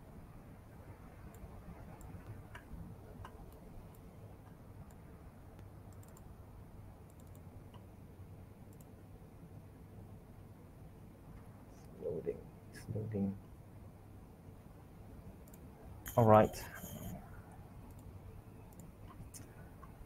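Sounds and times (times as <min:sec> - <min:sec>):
low steady hum: 0:00.0 - 0:20.0
computer clicks: 0:05.6 - 0:06.3, 0:07.0 - 0:07.9, 0:08.7 - 0:09.0, 0:15.4 - 0:17.2, 0:17.8 - 0:20.0.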